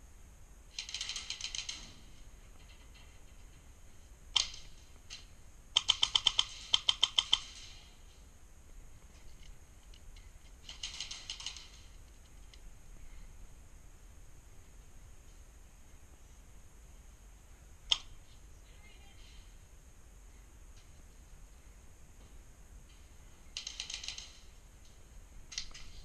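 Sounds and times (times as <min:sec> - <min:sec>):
airsoft guns firing: 0:00.7 - 0:02.2, 0:04.3 - 0:07.9, 0:10.6 - 0:12.0, 0:23.6 - 0:24.6.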